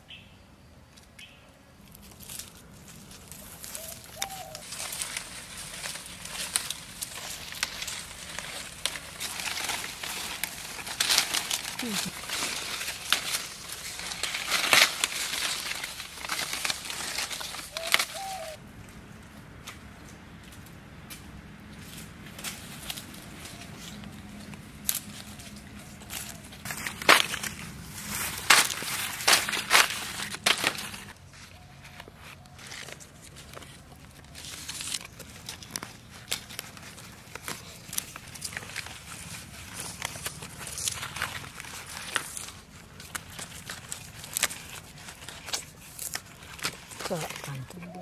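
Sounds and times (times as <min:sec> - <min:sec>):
leaves rustling and crackling: 0:01.8 - 0:48.0
stalks snapping: 0:03.6 - 0:18.6, 0:22.0 - 0:31.2, 0:34.3 - 0:48.0.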